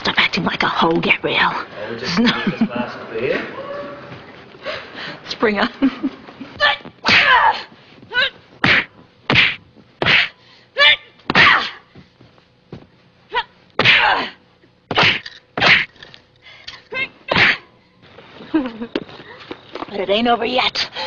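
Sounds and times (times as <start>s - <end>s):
smacks: 8.6s - 10.3s, 14.9s - 16.0s.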